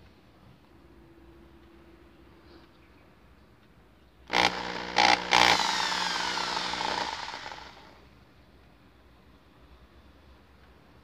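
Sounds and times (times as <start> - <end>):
drill bit grinding hits: 4.3 - 8.0
electric drill drilling plastic: 4.3 - 8.0.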